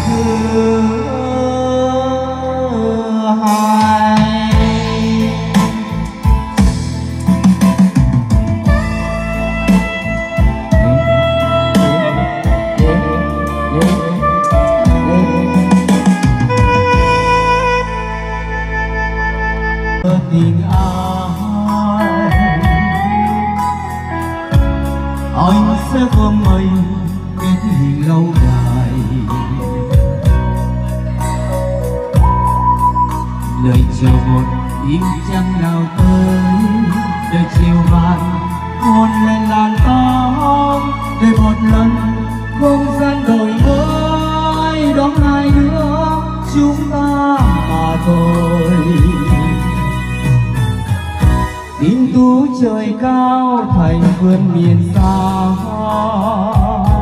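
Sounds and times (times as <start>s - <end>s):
loud backing music with beat: 0.0s - 57.0s.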